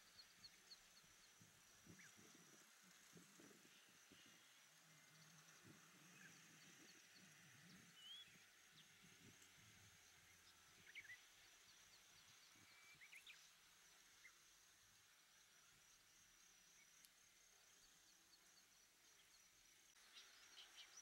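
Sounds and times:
small birds chirping: 0.0 - 14.4.

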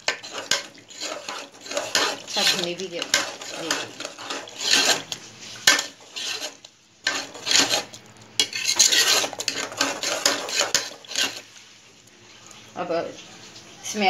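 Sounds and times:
metal spoon scraping a pot: 0.0 - 11.5.

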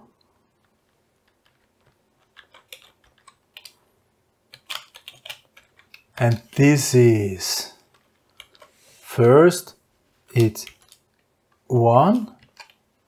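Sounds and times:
keyboard typing: 0.6 - 3.8, 4.5 - 6.6.

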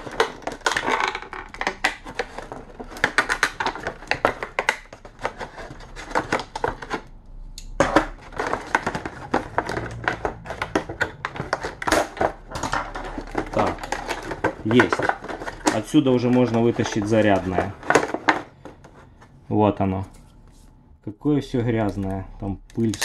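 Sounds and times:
plastic packaging crackling: 0.0 - 7.3, 8.0 - 19.2, 22.7 - 23.0.

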